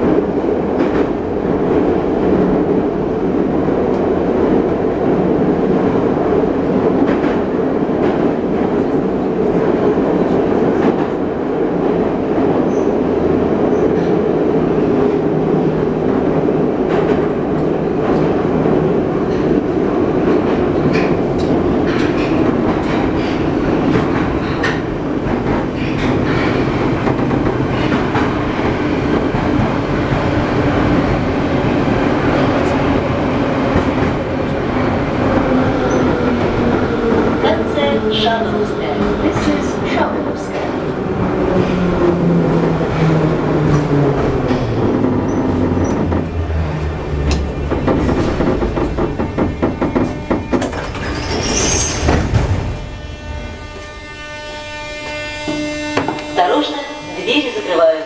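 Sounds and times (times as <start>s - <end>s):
metro train wheels rumbling: 0.0s - 58.0s
track clicks: 43.7s - 51.2s.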